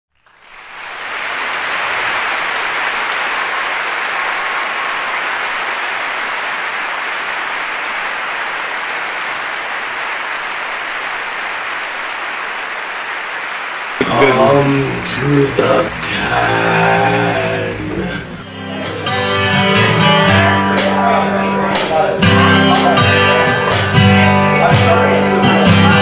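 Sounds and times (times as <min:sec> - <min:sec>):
crowd applause: 0:00.1 - 0:18.4.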